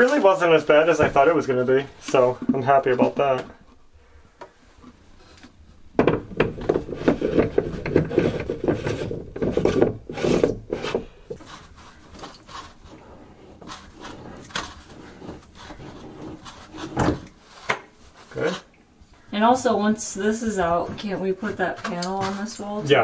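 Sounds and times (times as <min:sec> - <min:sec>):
plastic threads scraping: 0:04.8 - 0:18.8, 0:20.2 - 0:23.0.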